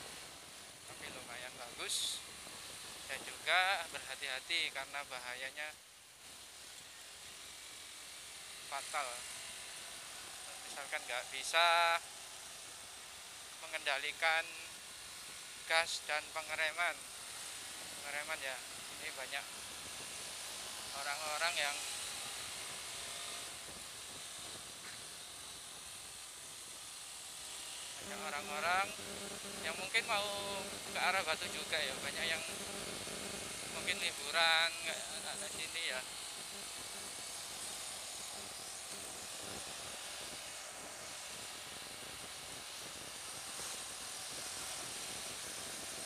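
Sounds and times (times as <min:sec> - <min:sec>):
wind and motorcycle road noise: 0:00.0 - 0:05.2, 0:14.7 - 0:46.0
wind rush on microphone: 0:00.9 - 0:04.0, 0:22.6 - 0:25.9, 0:39.0 - 0:46.0.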